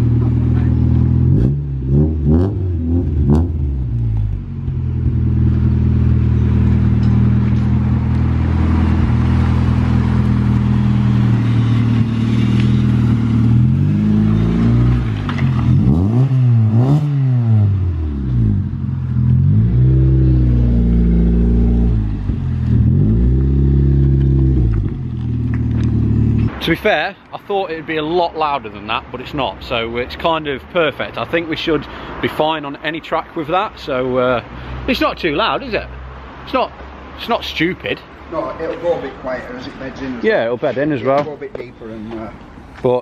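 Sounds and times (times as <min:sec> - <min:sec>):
car engine idling and revving: 0:00.0 - 0:26.6.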